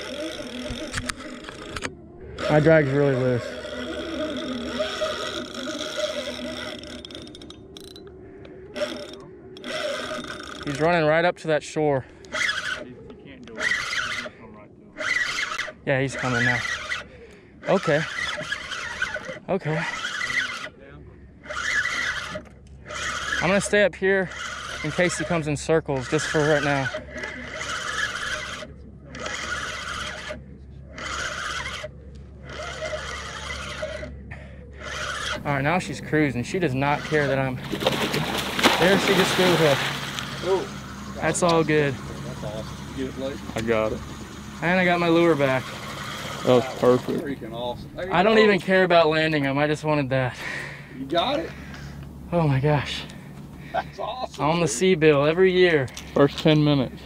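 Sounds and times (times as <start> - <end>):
fishing reel drag whining: 0.0 - 57.0.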